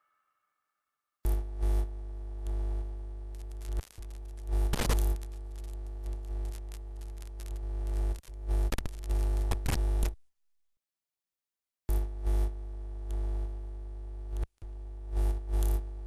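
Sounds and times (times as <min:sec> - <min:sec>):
crackling static: 0:01.3 - 0:10.2, 0:11.9 - 0:16.0
electrical hum and buzz: 0:01.3 - 0:10.2, 0:11.9 - 0:16.0.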